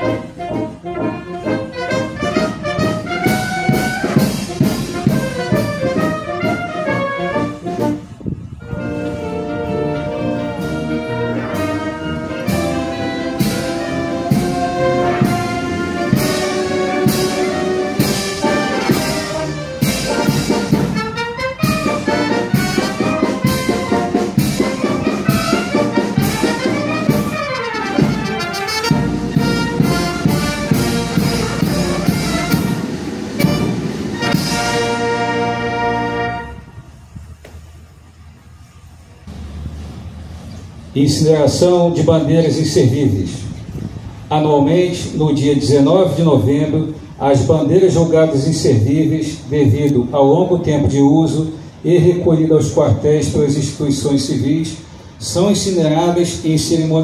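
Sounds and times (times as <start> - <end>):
brass band playing with drums: 0.0 - 37.1.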